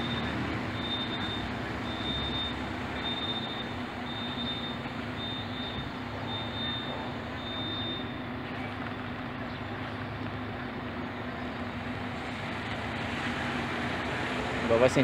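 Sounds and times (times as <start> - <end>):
high-pitched beep: 0.0 - 8.2
bus diesel engine running: 0.0 - 15.0.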